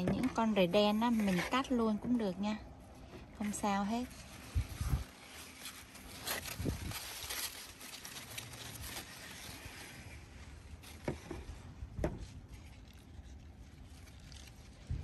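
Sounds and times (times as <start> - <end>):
corn leaves rustling: 3.4 - 15.0.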